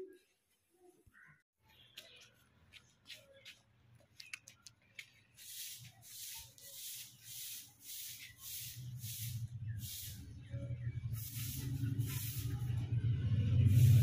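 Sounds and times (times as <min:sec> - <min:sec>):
rhythmic rubbing strokes: 0:11.0 - 0:12.9.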